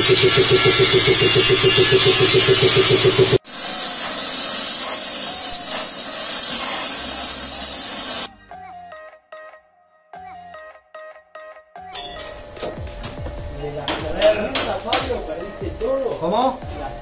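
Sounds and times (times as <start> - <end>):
hiss of steel being worked: 0.0 - 8.3.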